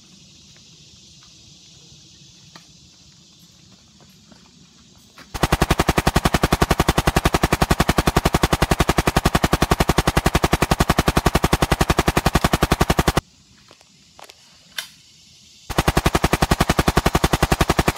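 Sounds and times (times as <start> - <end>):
machine gun fire: 5.4 - 13.2, 15.7 - 17.9.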